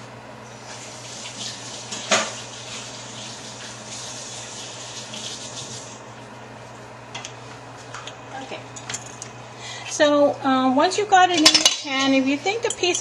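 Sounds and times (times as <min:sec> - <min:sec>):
tap running into sink: 0:01.4 - 0:02.4.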